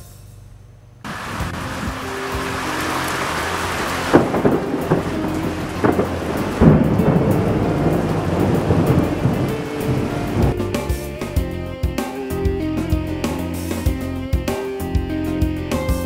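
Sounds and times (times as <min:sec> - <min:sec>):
steady rain: 0:01.1 - 0:10.7
thunder claps and rumbling: 0:01.1 - 0:10.7.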